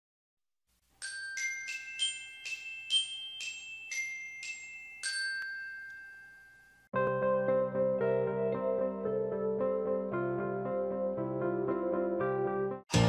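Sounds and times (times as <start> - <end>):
bell-like jingle: 1.0 - 6.9.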